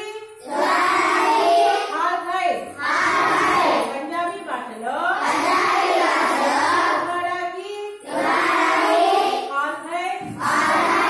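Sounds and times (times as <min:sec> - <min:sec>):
children singing in unison: 0:00.4 - 0:01.9, 0:02.8 - 0:03.9, 0:05.2 - 0:07.1, 0:08.0 - 0:09.5, 0:10.3 - 0:11.0.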